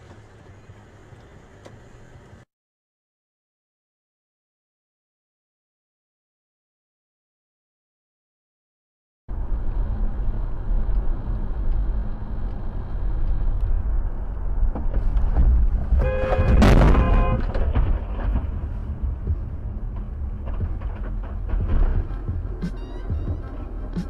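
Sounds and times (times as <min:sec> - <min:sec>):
car interior road noise: 0:00.0 - 0:02.5, 0:09.3 - 0:24.0
car horn honking: 0:16.0 - 0:17.7.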